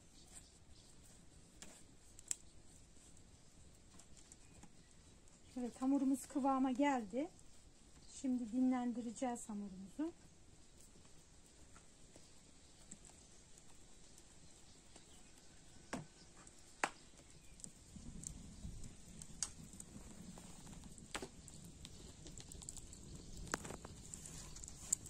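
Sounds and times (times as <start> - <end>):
fire popping: 0.0 - 25.0
wood fire crackling: 0.0 - 25.0
rush of flame: 17.1 - 25.0.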